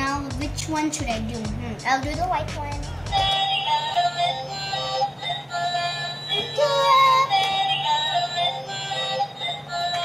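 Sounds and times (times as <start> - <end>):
toy electronic song with synthesized voice: 3.1 - 10.0.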